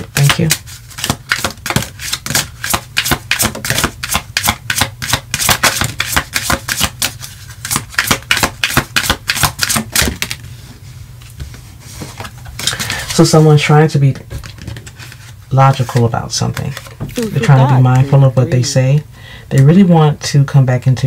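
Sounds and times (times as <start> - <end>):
cards being shuffled: 0.0 - 10.5.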